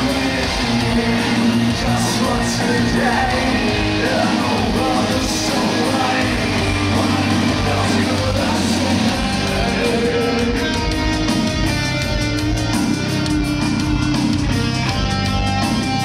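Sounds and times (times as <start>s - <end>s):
heavy metal band playing: 0.0s - 16.0s
steady drum beat: 0.0s - 16.0s.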